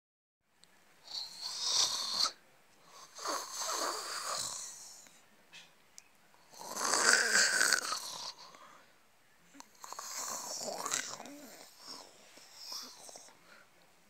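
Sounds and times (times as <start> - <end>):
person imitating snoring: 1.1 - 2.4, 3.0 - 4.9, 6.5 - 8.5, 9.7 - 13.4.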